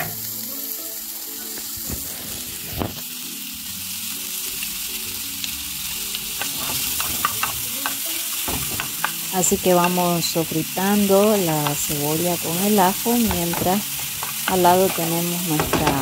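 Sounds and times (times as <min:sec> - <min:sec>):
onion and garlic sizzling in a pan: 0:00.0 - 0:16.0
wooden spoon scraping a pan: 0:06.4 - 0:09.0.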